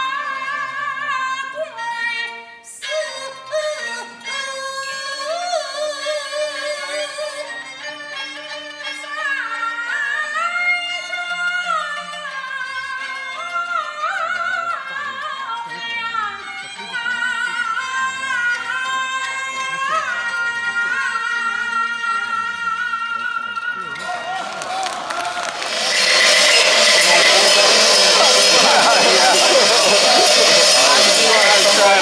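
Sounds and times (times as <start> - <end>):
opera melody with wide vibrato: 0.0 - 32.0.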